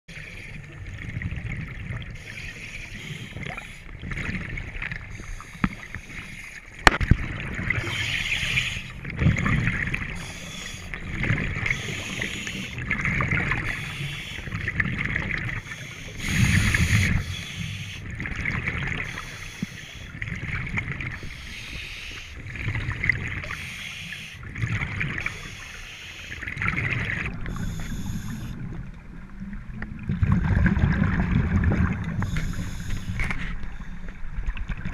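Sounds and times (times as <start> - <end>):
regulator breathing hiss: 2.2 - 3.9, 7.8 - 9.0, 10.1 - 11.0, 11.7 - 12.8, 13.6 - 14.6, 15.6 - 18.1, 19.0 - 20.2, 21.2 - 22.4, 23.5 - 24.4, 25.2 - 26.4, 27.4 - 28.6, 32.2 - 33.8
exhaust bubbles rumbling: 28.6 - 32.3.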